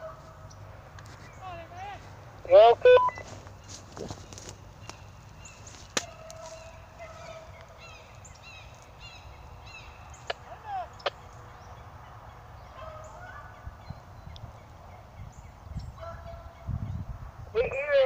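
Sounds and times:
hounds baying and howling: 6.0s - 7.8s.

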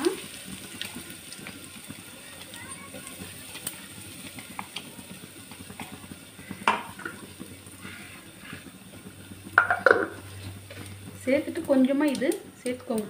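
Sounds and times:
spices crackling in hot oil: 0.0s - 13.0s
sharp knock on pot: 9.6s - 10.2s.

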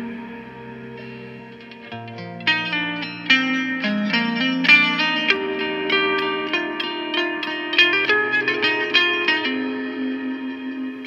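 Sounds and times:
clean electric guitar notes: 0.0s - 11.0s.

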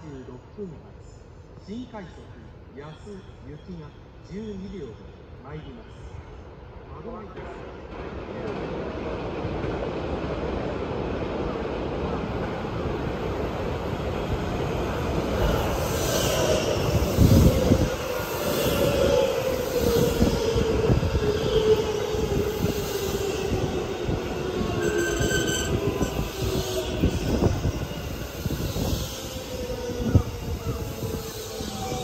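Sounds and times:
train motor whine: 24.1s - 30.6s
high-pitched brake squeal: 24.4s - 32.0s.

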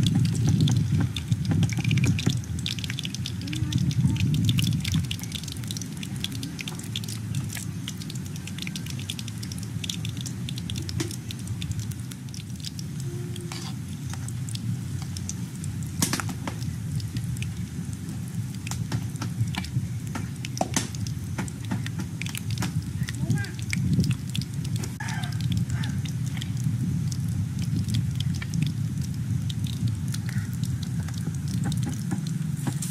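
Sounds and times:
fish sizzling in hot oil: 0.0s - 32.9s
oil crackling and popping: 0.0s - 32.9s.

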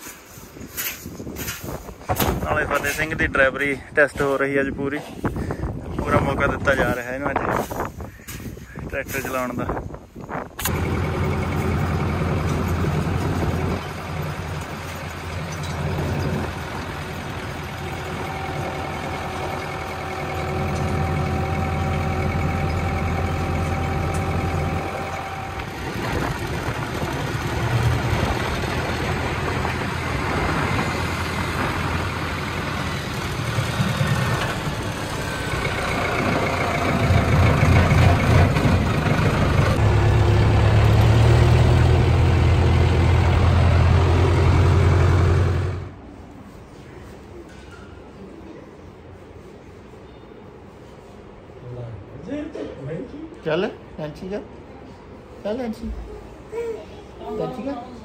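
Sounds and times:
tractor diesel engine running: 10.6s - 46.0s.

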